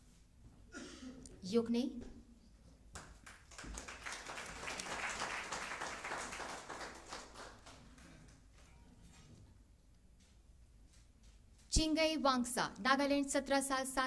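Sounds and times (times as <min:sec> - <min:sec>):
audience applause: 0:03.2 - 0:08.0.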